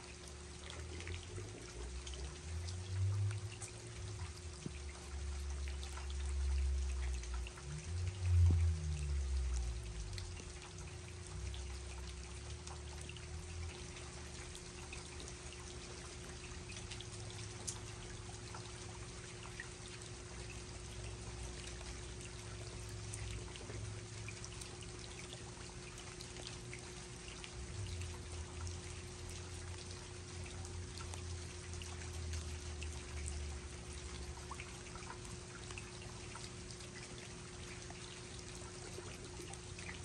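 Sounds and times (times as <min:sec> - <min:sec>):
faint steady hum: 0:00.0 - 0:40.0
running water: 0:00.0 - 0:40.0
steady rain falling: 0:00.0 - 0:40.0
low rumble: 0:06.4 - 0:10.8.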